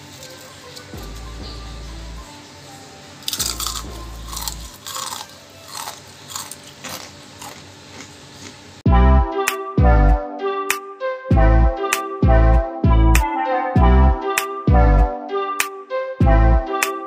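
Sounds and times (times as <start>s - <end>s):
soft background music: 0.0s - 7.6s, 8.8s - 17.0s
crunchy chewing: 3.2s - 8.7s.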